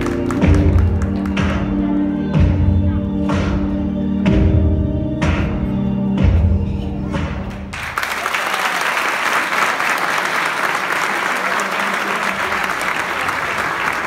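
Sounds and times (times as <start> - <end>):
audience applauding: 0.0 - 1.6, 7.7 - 14.0
dance music: 0.0 - 7.7.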